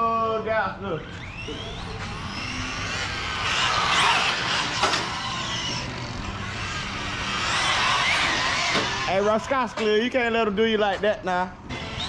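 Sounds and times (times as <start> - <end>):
electric motor whining: 1.0 - 9.7.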